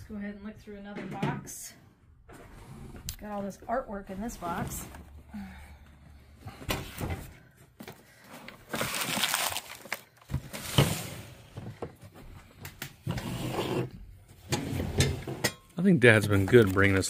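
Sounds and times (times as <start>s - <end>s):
packing rustling: 8.2s - 10.8s.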